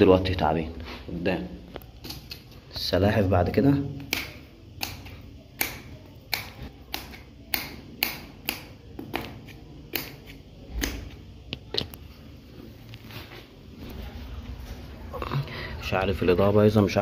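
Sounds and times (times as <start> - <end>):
knife chopping on tile: 4.0 - 11.2.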